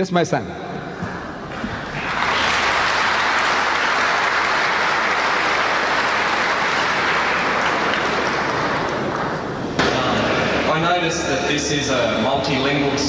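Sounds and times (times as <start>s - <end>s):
audience applauding: 1.2s - 10.8s.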